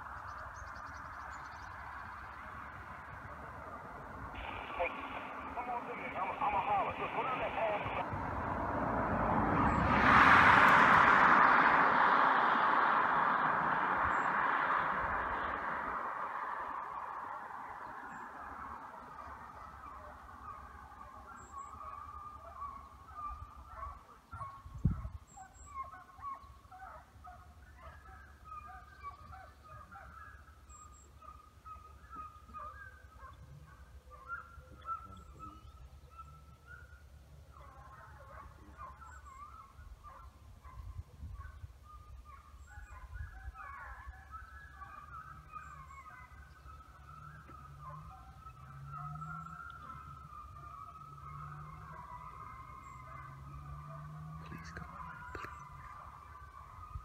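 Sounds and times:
distant hounds baying: 0:00.0 - 0:57.0
rushing noise: 0:02.6 - 0:17.8.

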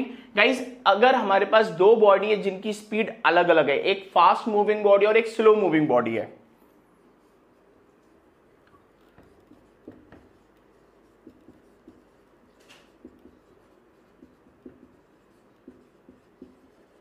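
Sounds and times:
marker squeaking on whiteboard: 0:07.0 - 0:17.0.

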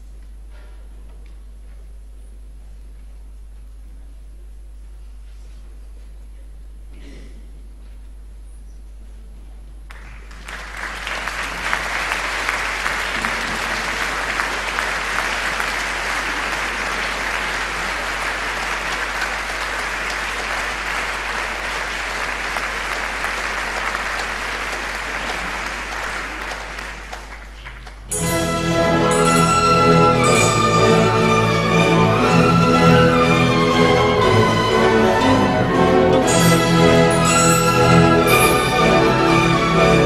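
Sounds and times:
audience applauding: 0:09.9 - 0:28.1
symphony orchestra playing: 0:28.1 - 0:40.0.

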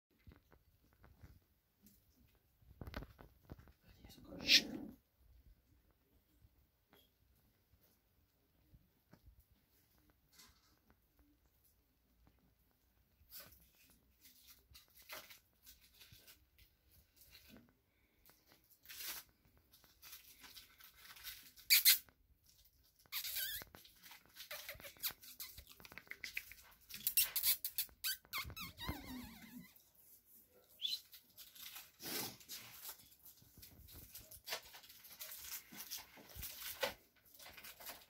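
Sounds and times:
squeaky noises: 0:21.6 - 0:22.1, 0:23.0 - 0:29.8
puppy scratching on blanket: 0:23.1 - 0:30.4.

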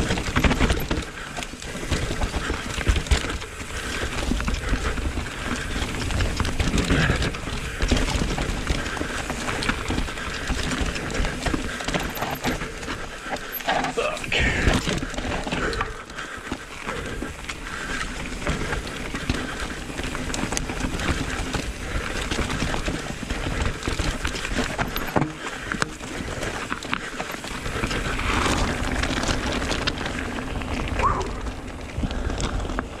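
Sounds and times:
bike rattling and clunking: 0:00.0 - 0:33.0
tyres crunching over stones: 0:00.0 - 0:33.0
wind on microphone: 0:27.7 - 0:32.9.

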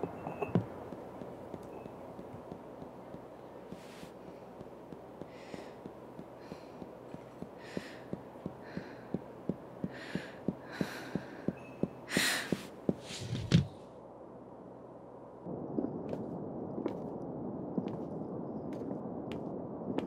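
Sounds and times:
regular ticking: 0:04.4 - 0:12.9.

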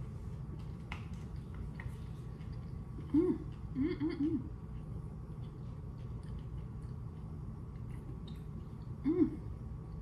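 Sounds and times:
steady low hum: 0:00.0 - 0:10.0
chewing mouth sounds: 0:04.5 - 0:09.0.

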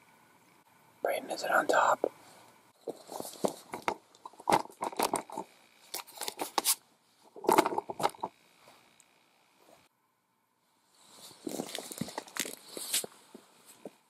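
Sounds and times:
camera handling rustle and clicks: 0:02.8 - 0:06.8, 0:11.3 - 0:13.2.

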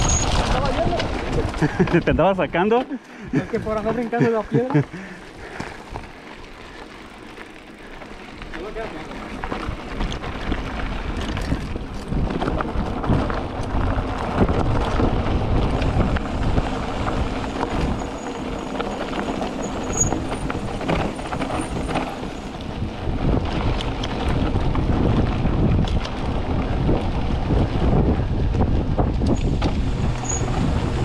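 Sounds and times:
bike clattering over bumps: 0:00.0 - 0:31.0
tyres on dirt and gravel: 0:00.0 - 0:31.0
wind rushing over microphone: 0:09.3 - 0:31.0.

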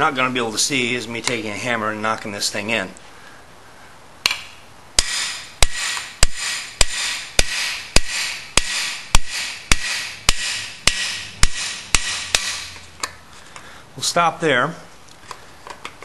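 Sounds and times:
hammer striking metal tool: 0:05.0 - 0:12.8.

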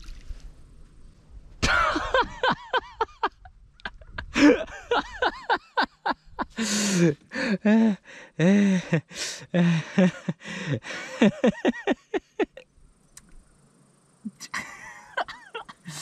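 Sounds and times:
man laughing: 0:01.6 - 0:12.6, 0:14.3 - 0:16.0.

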